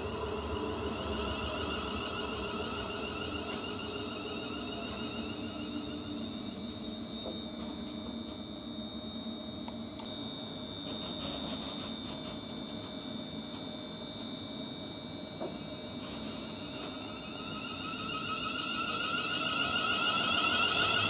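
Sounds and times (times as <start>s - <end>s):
train low rumble: 0.0s - 8.4s
electric train high-pitched whine: 0.0s - 21.0s.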